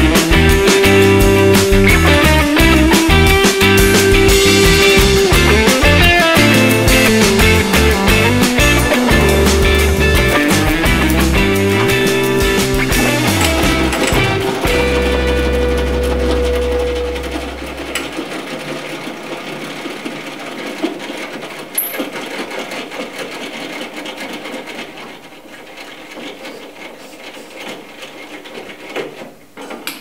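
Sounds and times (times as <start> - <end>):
machine low hum: 0.0 - 21.2
rapid mechanical rattle: 0.0 - 30.0.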